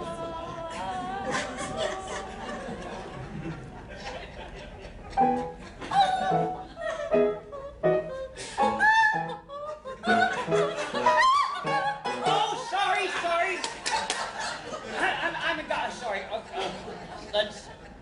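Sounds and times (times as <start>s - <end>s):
woman singing opera: 0.0s - 2.5s
piano chords: 5.2s - 12.7s.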